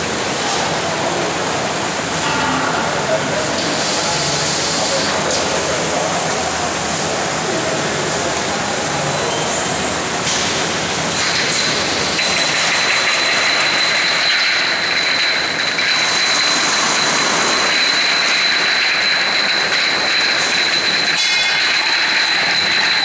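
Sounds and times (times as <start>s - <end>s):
machine noise: 0.0s - 23.0s
glass jars clinking: 13.7s - 23.0s.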